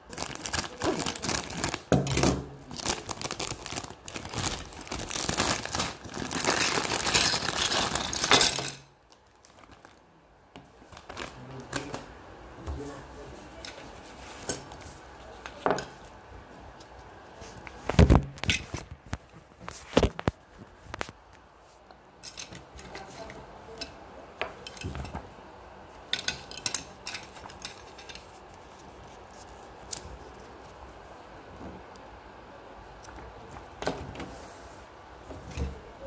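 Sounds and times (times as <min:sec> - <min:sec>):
plastic toy parts clattering: 0:00.2 - 0:08.9, 0:22.2 - 0:23.3, 0:26.1 - 0:28.3.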